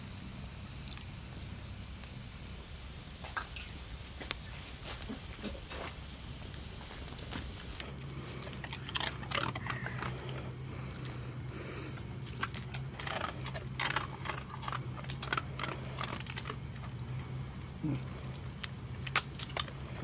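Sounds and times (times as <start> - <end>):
dog chewing and crunching food: 6.7 - 17.4, 18.0 - 20.0.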